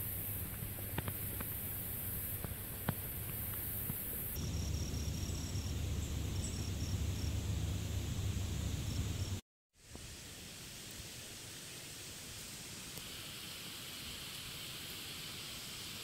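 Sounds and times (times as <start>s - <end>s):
steady hiss: 0.0s - 16.0s
faint high chirps: 3.2s - 7.5s.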